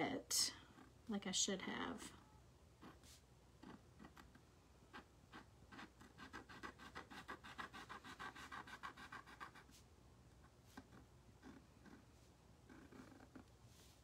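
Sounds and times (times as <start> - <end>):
marker tip scratching on wood: 2.8 - 9.8, 10.7 - 12.1.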